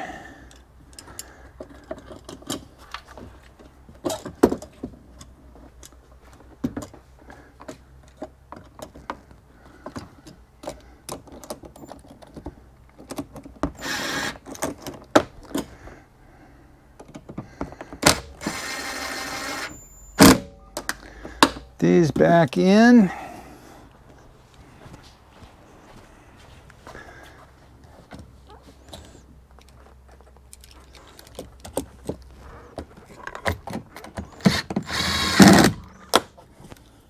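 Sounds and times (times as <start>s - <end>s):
cordless drill running: 13.8s - 14.4s, 18.0s - 19.8s, 34.3s - 35.8s.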